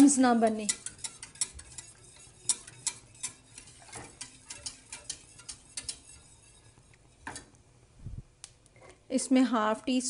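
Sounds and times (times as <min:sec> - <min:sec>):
wire whisk clicking in saucepan: 0:00.0 - 0:07.5.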